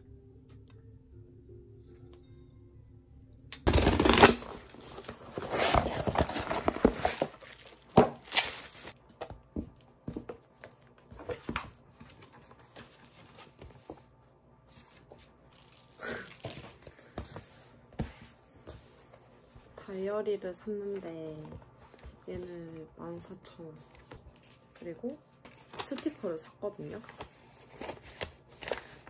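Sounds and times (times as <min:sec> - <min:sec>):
packaging tearing and crinkling: 0:03.7 - 0:09.0
paper rustling: 0:03.7 - 0:09.0.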